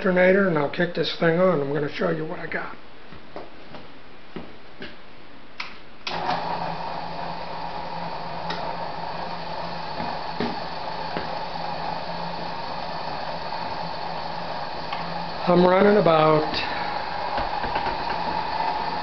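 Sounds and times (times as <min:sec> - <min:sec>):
alternator humming and whining: 0:06.0 - 0:19.0.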